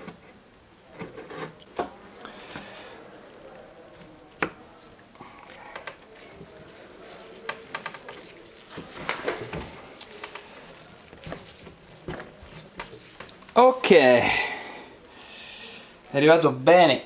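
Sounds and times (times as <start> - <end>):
light clicks and rubbing: 5.4 - 13.6.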